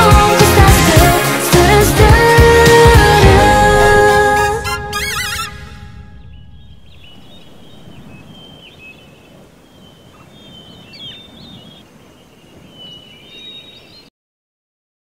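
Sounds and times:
birds chirping: 0:03.4 - 0:14.1.

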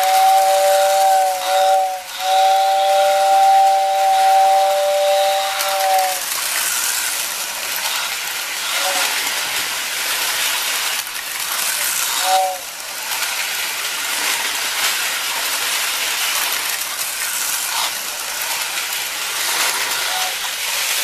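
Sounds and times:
two-tone electric train whistle: 0:00.0 - 0:06.4, 0:08.6 - 0:09.2, 0:12.2 - 0:12.7, 0:20.0 - 0:20.5
toy train rolling on track: 0:00.0 - 0:21.0.

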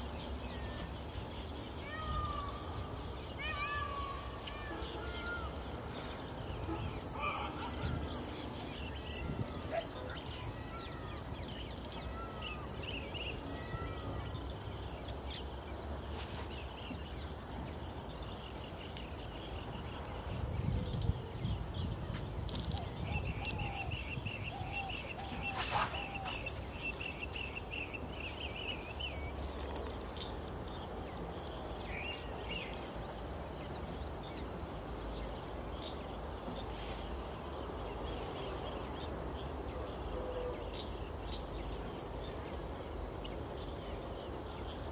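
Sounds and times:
insects droning: 0:00.0 - 0:44.9
bird calls: 0:22.5 - 0:29.9.

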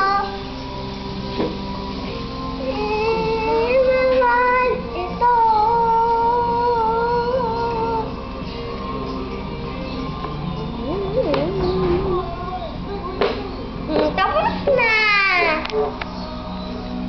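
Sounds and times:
boy singing long notes: 0:02.6 - 0:08.2, 0:10.8 - 0:13.7.

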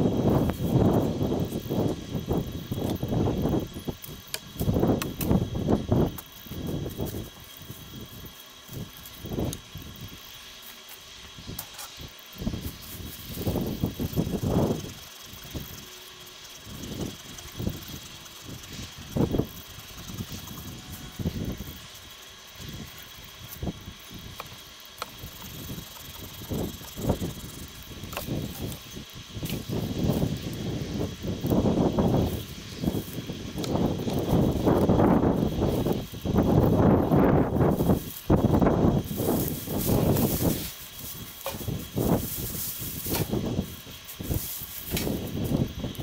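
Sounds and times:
wind gusting over microphone: 0:00.0 - 0:10.2, 0:11.4 - 0:15.8, 0:25.2 - 0:46.0
faint outdoor hiss: 0:00.0 - 0:46.0.

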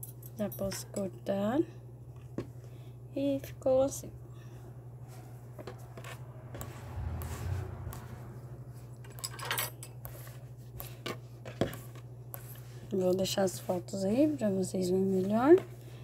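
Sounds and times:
steady low hum: 0:00.0 - 0:16.0
dull rumble: 0:05.8 - 0:09.0.

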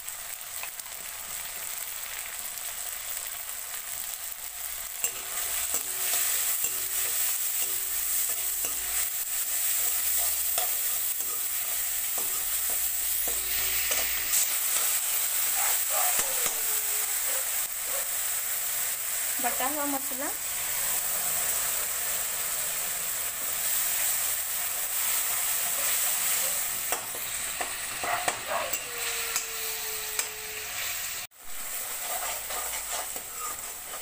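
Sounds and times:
onions and tomatoes sizzling: 0:00.0 - 0:34.0
spatula scraping a pan: 0:04.9 - 0:17.9, 0:25.0 - 0:34.0.

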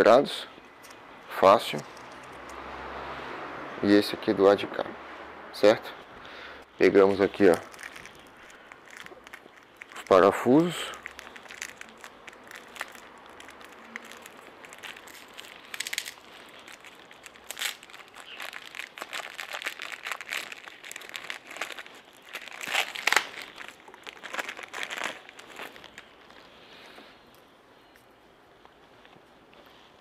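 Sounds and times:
plastic bag crinkling: 0:07.0 - 0:26.6.

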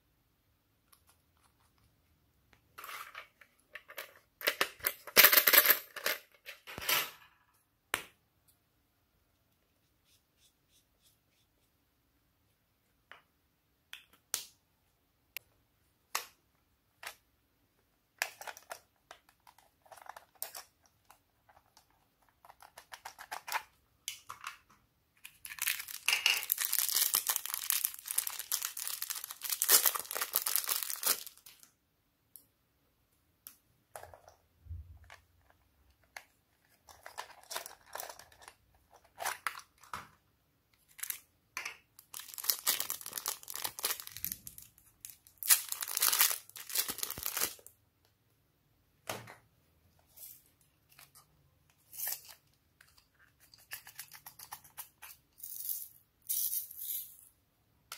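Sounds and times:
plastic bags crinkling and tearing: 0:25.4 - 0:31.7, 0:40.9 - 0:41.2, 0:42.0 - 0:47.7.

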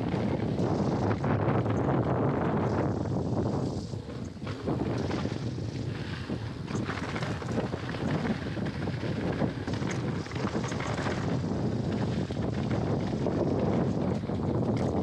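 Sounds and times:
bike rattling over bumps: 0:00.0 - 0:15.0
wind buffeting microphone: 0:00.0 - 0:15.0
tyres rumbling on dirt: 0:04.0 - 0:15.0.

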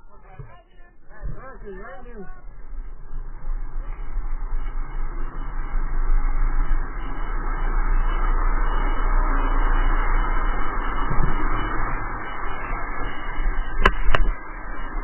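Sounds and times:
wheels rolling on asphalt: 0:01.3 - 0:15.0
wind on microphone: 0:09.2 - 0:15.0.

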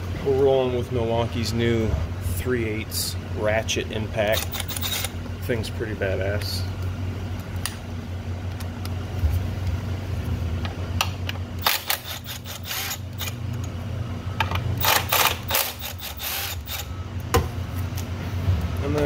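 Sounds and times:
electric ratchet running: 0:04.2 - 0:05.2, 0:11.6 - 0:13.4, 0:14.8 - 0:17.0
ratchet clicks: 0:04.3 - 0:05.1, 0:11.6 - 0:13.4, 0:14.8 - 0:16.9.

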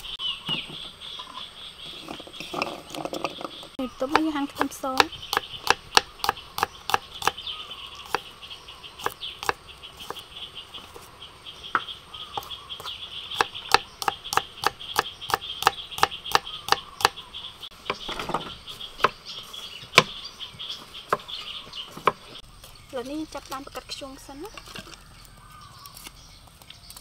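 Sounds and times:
insects chirring: 0:00.0 - 0:27.0
knife chopping on wooden board: 0:04.1 - 0:07.4, 0:09.0 - 0:10.2, 0:12.4 - 0:17.2.

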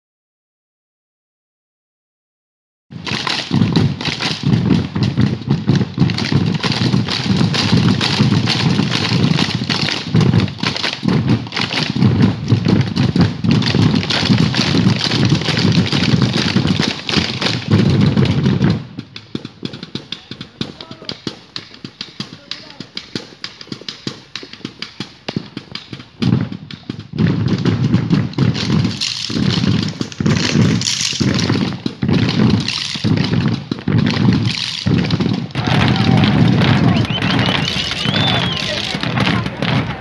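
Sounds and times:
drums beaten in fast rhythm: 0:03.0 - 0:40.0
faint scattered taps: 0:18.6 - 0:35.3.

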